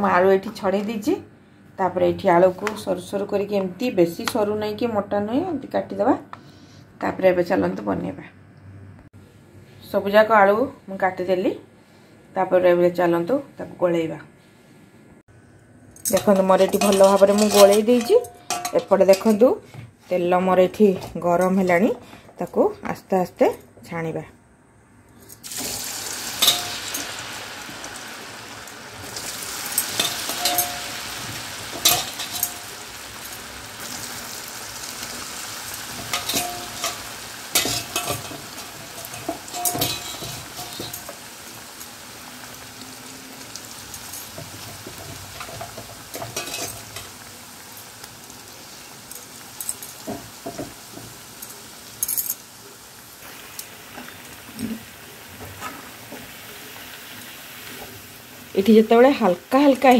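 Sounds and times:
metal spoon clinking on pan: 16.0 - 19.4, 26.4 - 27.2, 29.6 - 33.5, 35.7 - 41.9, 43.8 - 47.2
deep-frying sizzle: 25.4 - 59.9.

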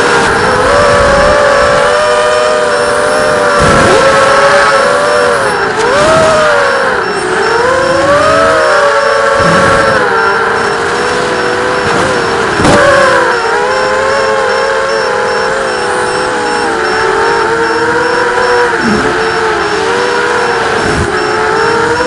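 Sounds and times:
quadcopter motors whining: 0.0 - 22.0.

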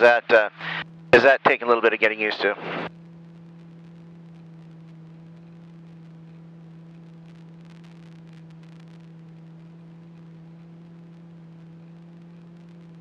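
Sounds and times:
aircraft cockpit hum: 0.0 - 13.0
faint ticks: 2.9 - 13.0.

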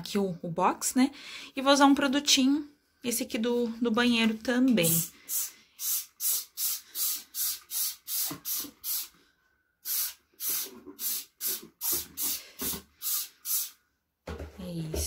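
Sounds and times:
trigger spray bottle spraying: 4.9 - 9.2, 9.8 - 13.8.

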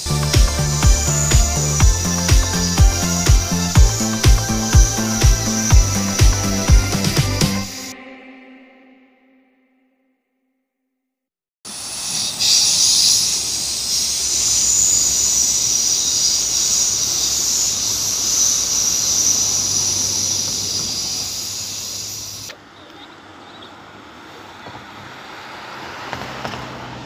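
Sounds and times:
outdoor background noise: 11.7 - 27.0
train running on tracks: 11.8 - 22.4.

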